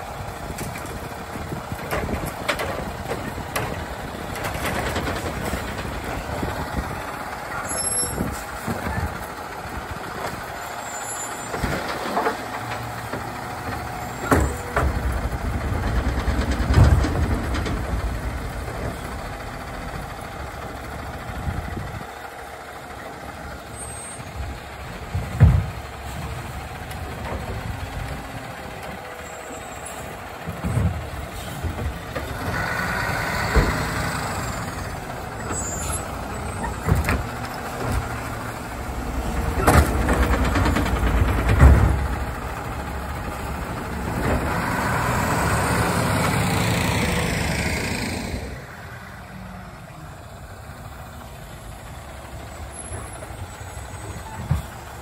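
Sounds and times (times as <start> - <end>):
bangs and clanks of trash carts: 0.0 - 21.6, 24.6 - 48.6
garbage truck engine running: 0.0 - 55.0.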